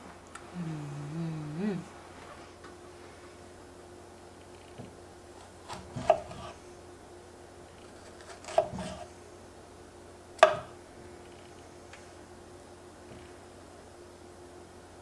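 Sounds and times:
knife cutting a strawberry: 5.4 - 6.6, 7.8 - 9.1, 10.4 - 10.7.

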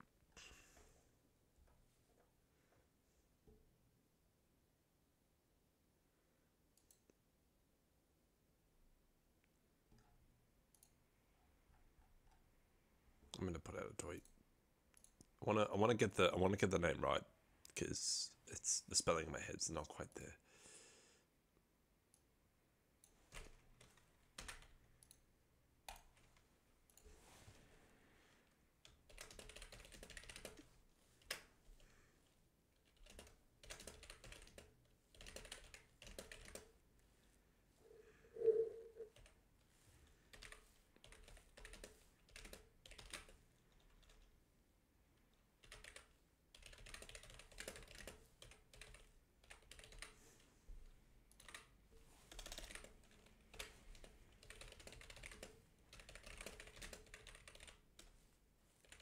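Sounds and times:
typing on keyboard: 23.0 - 25.2, 25.9 - 26.4, 28.8 - 31.9, 32.8 - 36.8, 38.4 - 39.4, 40.3 - 44.3, 45.6 - 50.2, 51.3 - 51.7, 52.3 - 58.2
brief low sound: 38.3 - 39.1.

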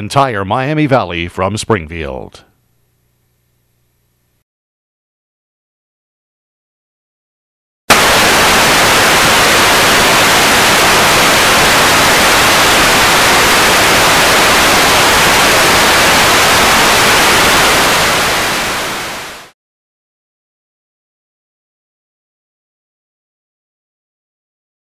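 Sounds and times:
television static hiss: 7.9 - 19.5.

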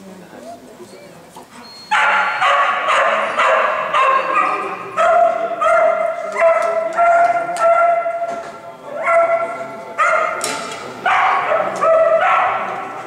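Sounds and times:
dog barking loudly: 1.9 - 8.3, 9.0 - 10.4, 11.0 - 13.0.

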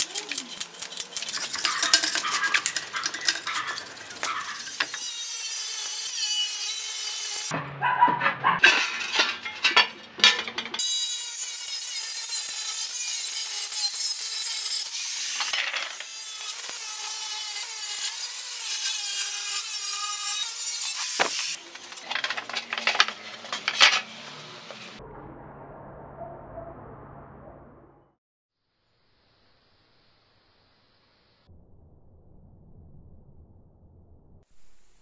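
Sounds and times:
metallic knocks and scrapes: 0.0 - 5.1, 7.5 - 10.8
angle grinder cutting steel: 0.0 - 7.5, 8.6 - 25.0.

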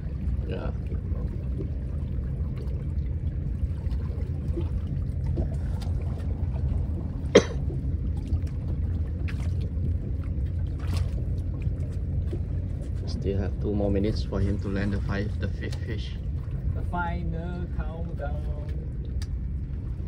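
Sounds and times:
water lapping against boat hull: 0.0 - 20.0
wind rumble: 0.0 - 20.0
faint ticks: 18.6 - 19.4.

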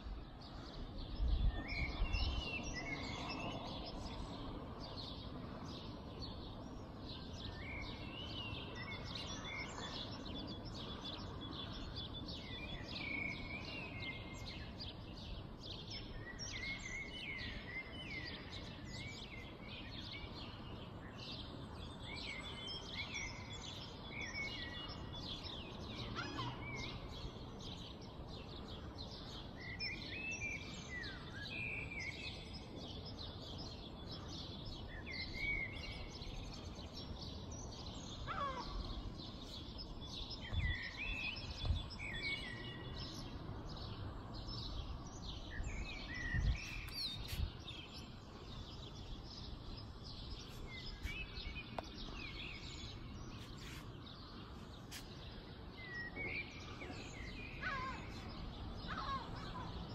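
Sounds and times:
birds chirping and calling: 44.0 - 59.9.

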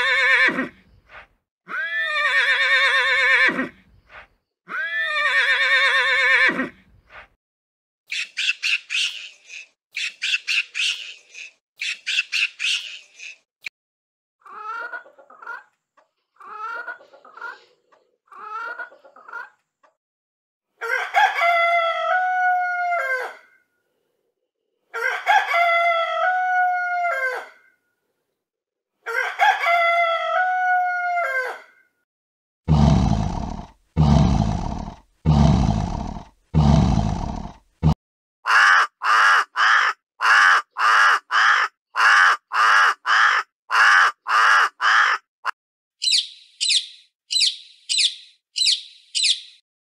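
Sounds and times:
hen clucking: 14.4 - 15.7, 18.3 - 19.6
rooster crowing: 20.8 - 23.4, 25.0 - 27.5, 29.1 - 31.6
crow cawing: 38.4 - 45.2.

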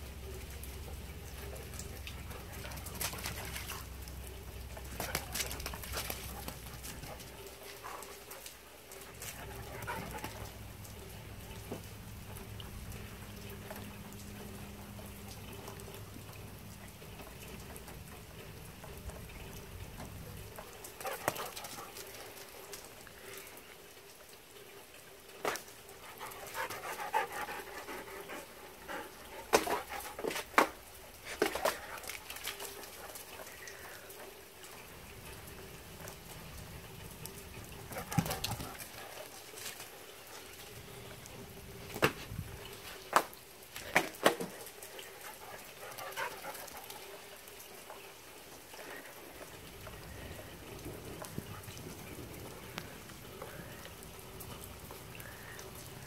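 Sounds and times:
rain falling: 0.0 - 56.0
dog panting: 5.0 - 10.6, 20.9 - 22.8, 25.5 - 33.8, 37.8 - 40.6, 45.0 - 47.4.

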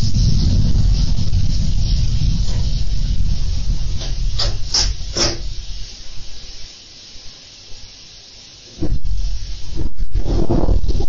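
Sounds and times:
loud rush of noise: 0.0 - 7.3
burning battery hissing: 0.0 - 11.0.

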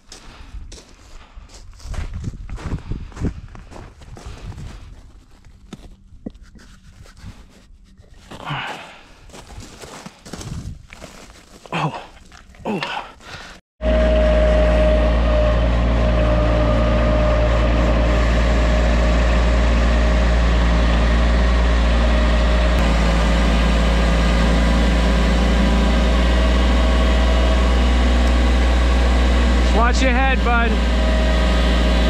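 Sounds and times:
loader engine idling: 13.8 - 32.0.

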